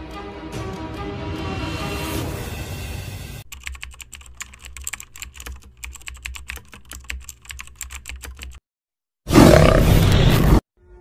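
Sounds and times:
keyboard typing clicks: 0:03.5 - 0:08.6
big cat roar: 0:09.3 - 0:10.4.

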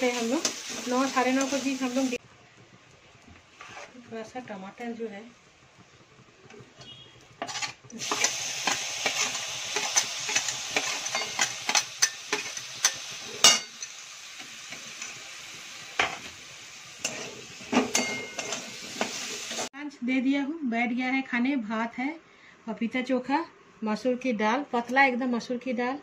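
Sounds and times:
tomatoes sizzling in hot oil: 0:00.0 - 0:19.7
steel spatula scraping pan: 0:03.5 - 0:04.1, 0:06.8 - 0:13.9, 0:17.0 - 0:19.7.

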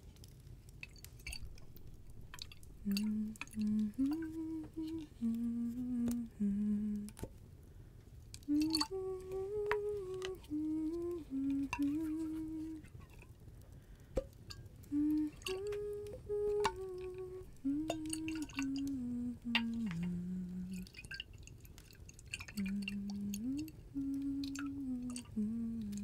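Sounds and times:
woman humming: 0:02.7 - 0:07.2, 0:08.5 - 0:12.9, 0:14.8 - 0:20.9, 0:22.6 - 0:26.0.

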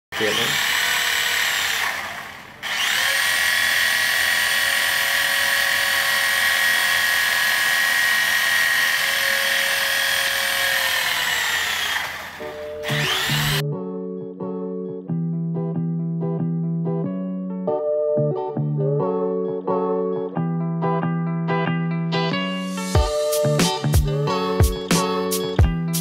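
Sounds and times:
toy helicopter rotors whining: 0:00.2 - 0:13.6
music: 0:12.4 - 0:26.0.

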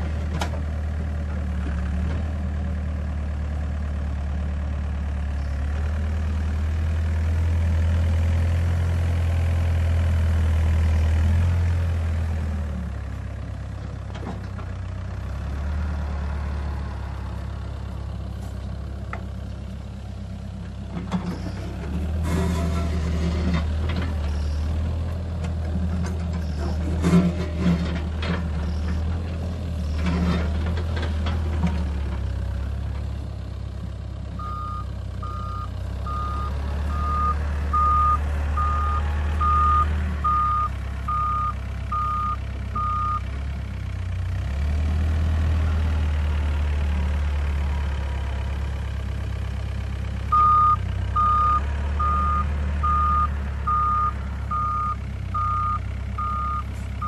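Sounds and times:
diesel engine running: 0:00.0 - 0:57.0
travel alarm beeping: 0:50.3 - 0:56.6.

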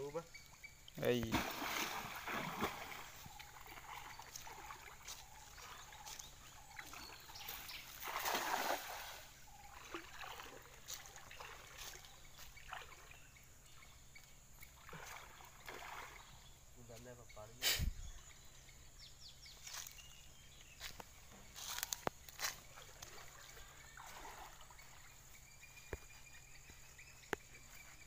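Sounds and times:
river water splashing and trickling: 0:00.0 - 0:17.1, 0:18.2 - 0:28.0
net splashing onto water: 0:01.2 - 0:03.1, 0:08.0 - 0:09.2.

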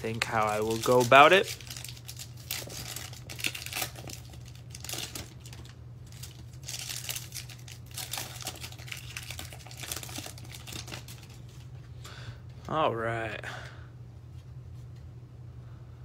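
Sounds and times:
foil wrapper crinkling: 0:00.0 - 0:11.7
wrapper tearing: 0:00.1 - 0:11.6.

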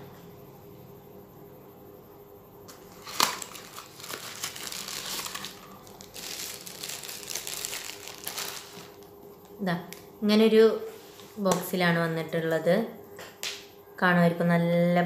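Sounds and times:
plastic wrapping crinkling: 0:02.7 - 0:10.0.

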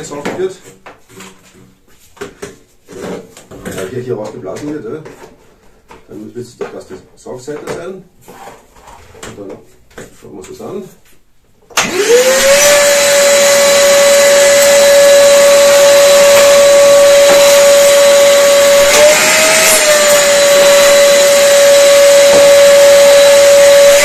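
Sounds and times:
shop vacuum running: 0:11.8 - 0:24.0.

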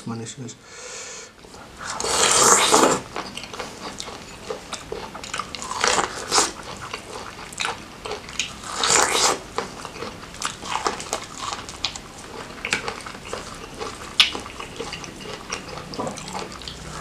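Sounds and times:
wet bite and slurp: 0:01.8 - 0:04.2
chewing with smacking clicks: 0:03.0 - 0:17.0.

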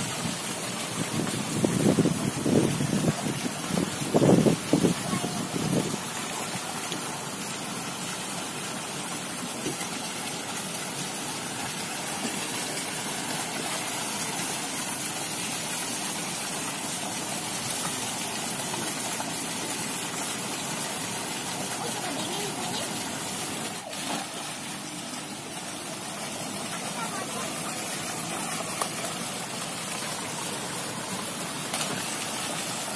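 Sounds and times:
water spouts pouring into pool: 0:00.0 - 0:32.9
child splashing in water: 0:21.6 - 0:32.9.

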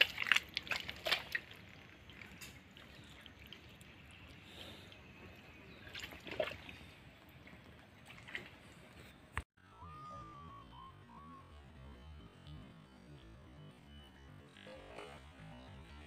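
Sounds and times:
water trickling and dripping: 0:00.0 - 0:08.8.

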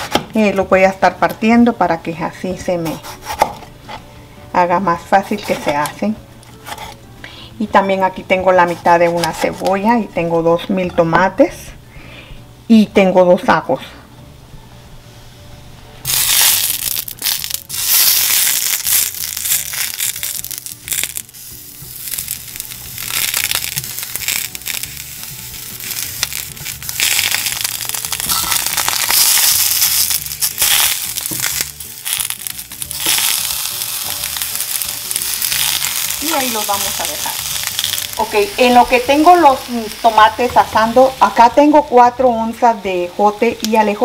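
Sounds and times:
tomatoes sizzling in a skillet: 0:16.0 - 0:44.0.

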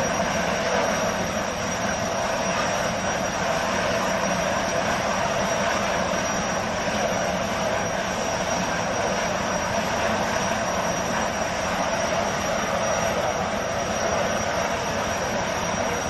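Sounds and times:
high steady turbine whine: 0:00.0 - 0:16.0.

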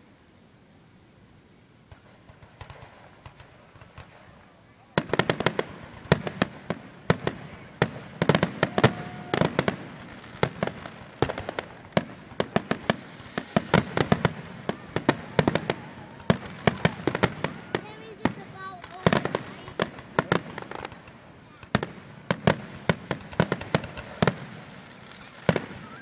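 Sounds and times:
fireworks bangs and crackles: 0:01.8 - 0:26.0.

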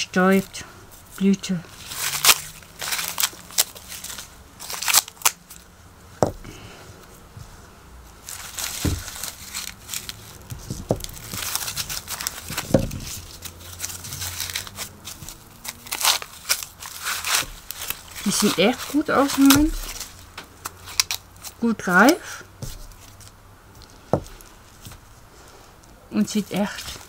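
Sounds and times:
corn husks tearing and rustling: 0:00.2 - 0:05.7, 0:08.2 - 0:25.0, 0:26.4 - 0:27.0
husk leaves snapping: 0:01.7 - 0:05.7, 0:08.2 - 0:25.0.

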